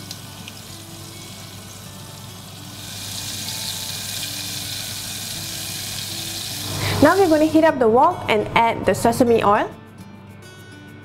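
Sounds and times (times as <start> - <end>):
hot oil sizzling: 0.0 - 7.6.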